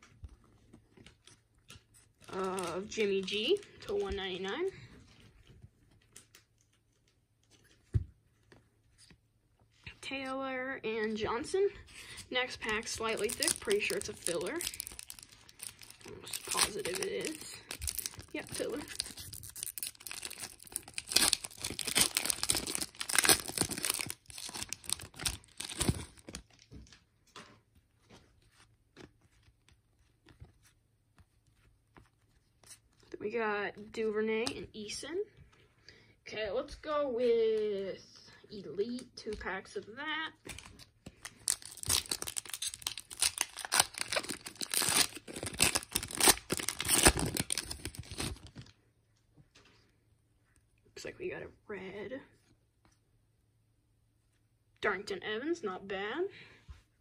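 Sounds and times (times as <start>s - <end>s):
foil wrapper tearing and crinkling: 12.5s - 26.6s, 40.5s - 48.7s.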